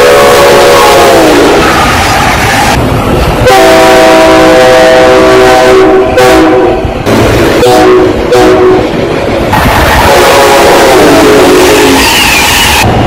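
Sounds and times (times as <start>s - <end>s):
train horn blasts: 0.0s - 1.6s, 3.4s - 6.9s, 7.6s - 8.9s, 10.0s - 12.1s
passing train rushing: 0.0s - 13.0s.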